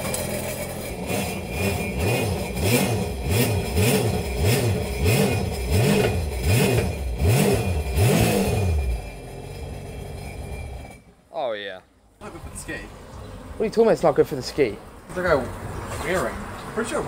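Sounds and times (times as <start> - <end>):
jet ski engine revving: 0.0 - 9.1.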